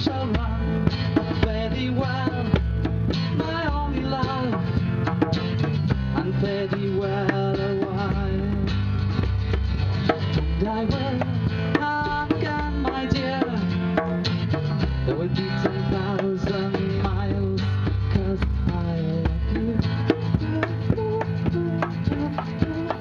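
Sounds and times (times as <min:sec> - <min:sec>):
bass line: 0:00.0 - 0:23.0
hand drum tapping: 0:00.0 - 0:23.0
strummed acoustic guitar: 0:00.0 - 0:23.0
person singing: 0:15.1 - 0:23.0.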